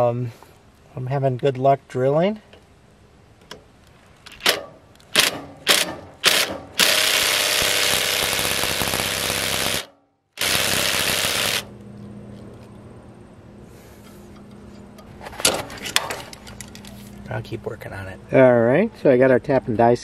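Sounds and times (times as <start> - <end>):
impact driver hammering: 4.4 - 11.7.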